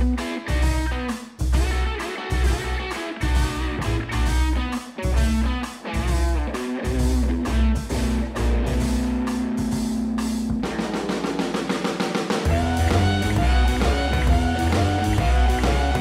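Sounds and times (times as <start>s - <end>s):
heavy bass: 0.0s - 11.8s, 12.4s - 16.0s
music with drums and guitar: 0.0s - 16.0s.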